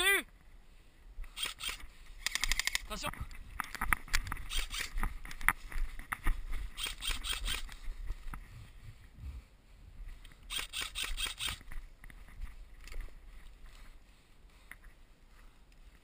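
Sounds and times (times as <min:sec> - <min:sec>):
airsoft guns firing rapid clicks: 0:01.3 - 0:03.0, 0:10.5 - 0:11.6
rustling in grass: 0:02.9 - 0:16.0.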